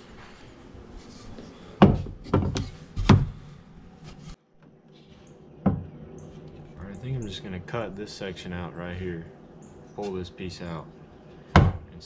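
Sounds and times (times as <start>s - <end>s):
building materials knocking: 1.8s - 3.4s.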